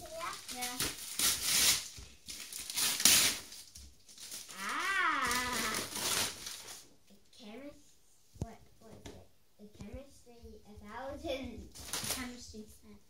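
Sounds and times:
wrapping paper tearing: 0:00.0 - 0:06.8, 0:11.8 - 0:12.3.

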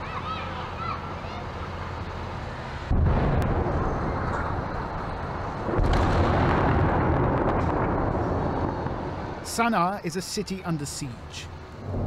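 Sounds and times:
heavy explosions with low rumble: 0:02.9 - 0:09.7.

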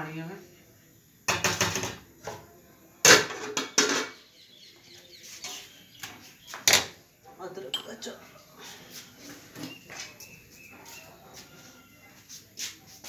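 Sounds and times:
pots and utensils clattering: 0:01.3 - 0:04.3.

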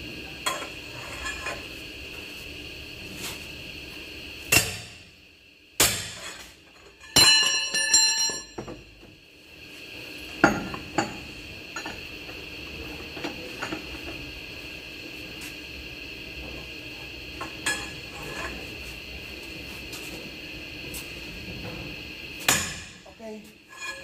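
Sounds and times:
steel tools clanking: 0:23.7 - 0:24.0.

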